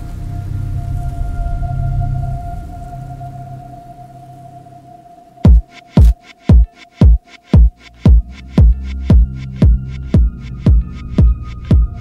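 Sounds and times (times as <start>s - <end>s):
hi-hat ticks: 5.4s - 12.0s
kick drum: 5.4s - 12.0s
sustained bass line: 7.8s - 12.0s.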